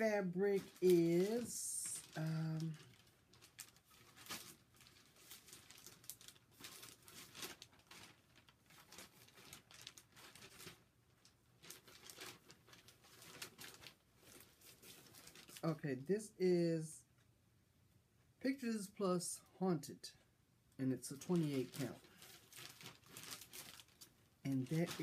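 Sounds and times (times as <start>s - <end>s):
plastic bags crinkling: 0.0s - 15.8s, 21.1s - 25.0s.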